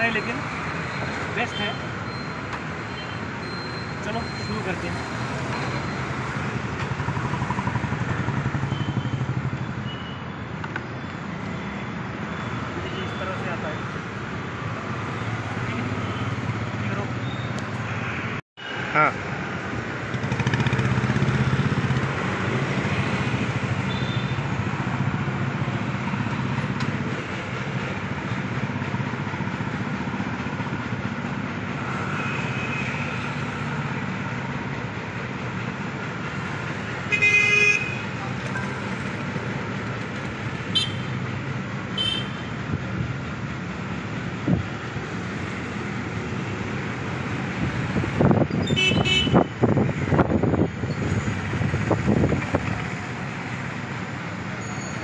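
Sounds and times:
street traffic: 0.0 - 55.0
vehicle horn: 37.1 - 38.2, 40.7 - 41.1, 42.0 - 42.5, 48.6 - 49.5.

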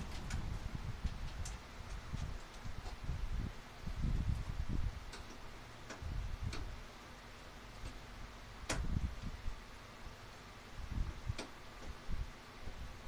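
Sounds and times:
soft low bumps and handling noise: 0.0 - 3.4.

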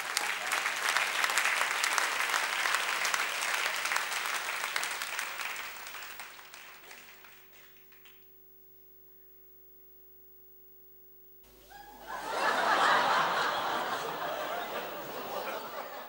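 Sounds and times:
audience applauding: 0.0 - 8.2, 11.5 - 16.0.

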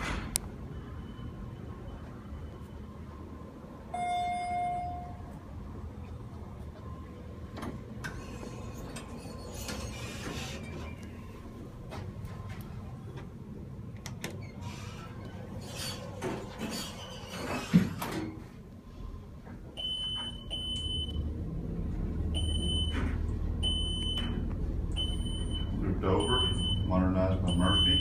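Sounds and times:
elevator doors sliding shut: 0.0 - 0.6, 7.4 - 11.4, 13.9 - 18.4
elevator motor hum: 0.4 - 28.0
short high beep: 4.0 - 5.3.

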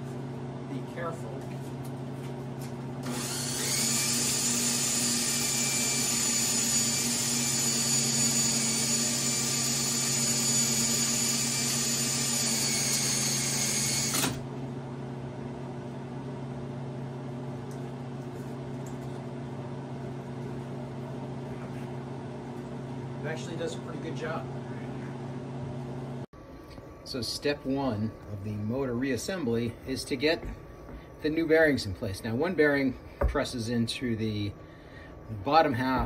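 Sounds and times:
electric drill whining: 3.0 - 14.4.

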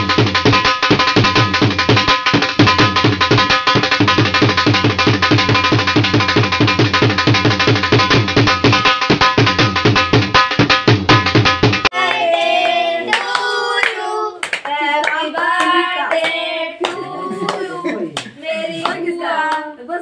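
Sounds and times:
hand clapping: 11.9 - 19.7
people singing together: 11.9 - 19.8.

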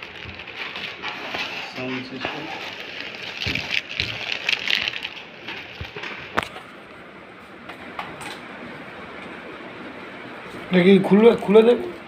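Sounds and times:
plastic wrapping crinkling: 0.0 - 6.7.

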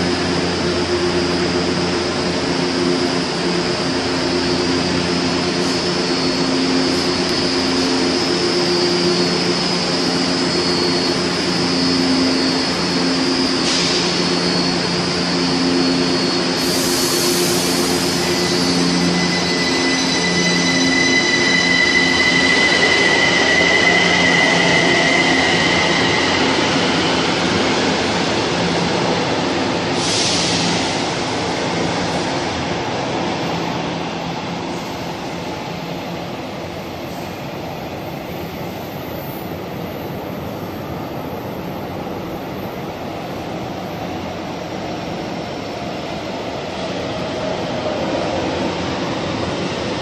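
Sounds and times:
high whine: 4.4 - 28.3.

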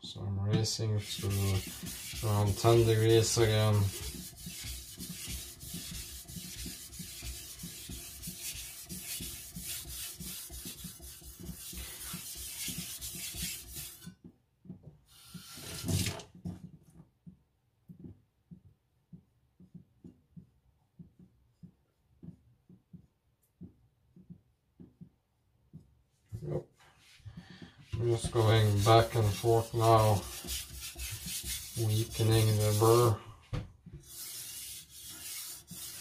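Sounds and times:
knife scraping on whetstone: 1.0 - 14.1, 28.1 - 33.1, 34.0 - 36.0.

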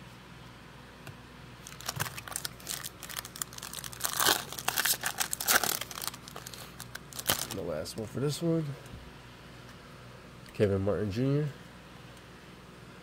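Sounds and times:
wrapper tearing and crinkling: 1.6 - 7.6.

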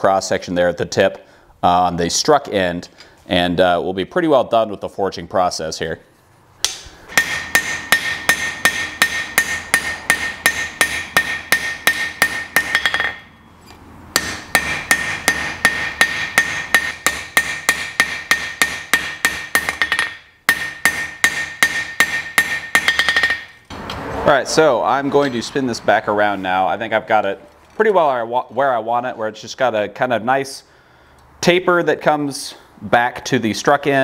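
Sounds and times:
hammer ringing on hot steel: 7.2 - 13.3, 14.2 - 23.5.

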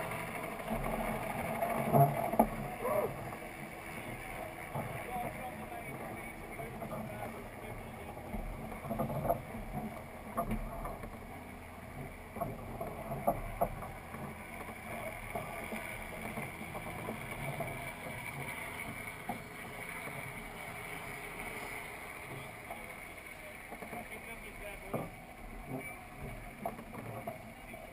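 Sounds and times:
water rushing along hull: 0.0 - 27.9
wind: 0.0 - 27.9.

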